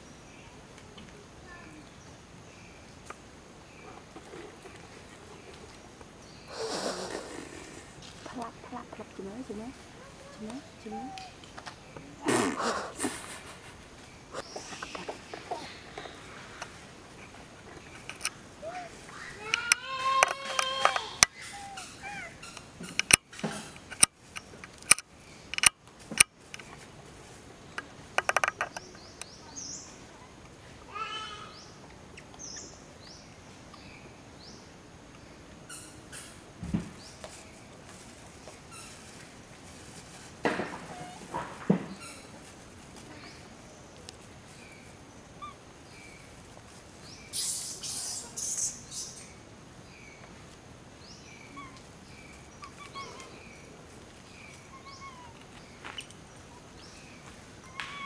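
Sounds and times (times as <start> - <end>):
small birds chirping: 0.0 - 25.6, 27.6 - 40.2, 40.8 - 58.0
monkeys giving squeaky calls: 10.0 - 11.4, 18.6 - 22.6, 40.9 - 41.3, 47.3 - 49.3, 51.5 - 51.8, 52.6 - 53.3, 54.6 - 55.4, 57.7 - 58.0
loud high hissing bursts: 47.3 - 49.0.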